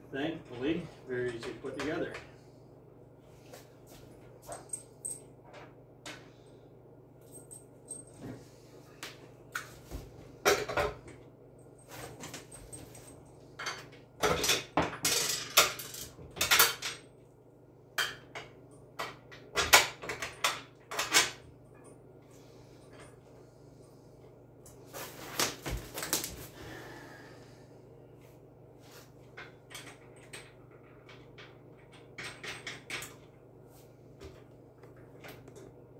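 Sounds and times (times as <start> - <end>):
metal and plastic parts rattling: 12.0 - 17.0.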